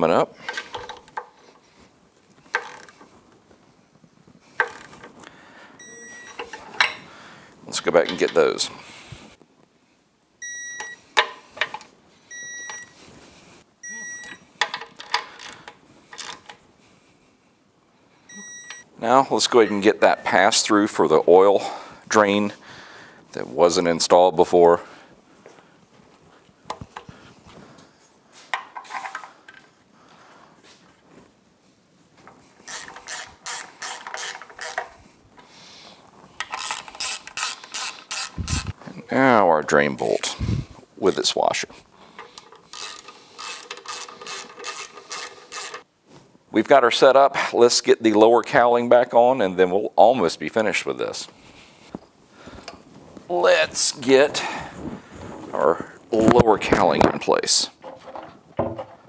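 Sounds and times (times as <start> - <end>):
torque wrench beeping: 5.8 - 6.5, 32.7 - 34.8, 36.5 - 38.7, 42.4 - 45.8
wrench clicking on bolts: 32.6 - 34.9, 36.4 - 38.6, 42.2 - 45.8.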